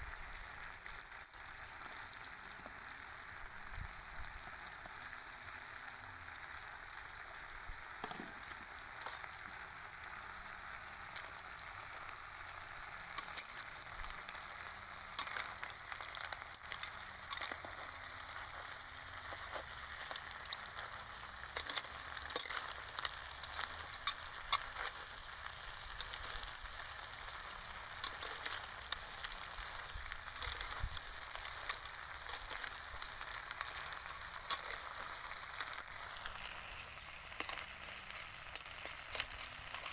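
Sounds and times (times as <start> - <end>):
food sizzling in a pan: 0.0 - 39.9
metal spatula scraping a pan: 13.1 - 36.3, 37.3 - 39.9.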